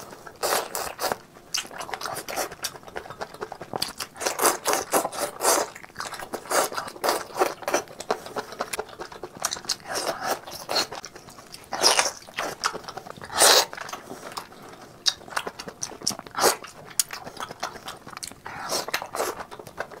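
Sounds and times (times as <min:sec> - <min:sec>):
wet chewing and mouth sounds: 0:00.0 - 0:20.0.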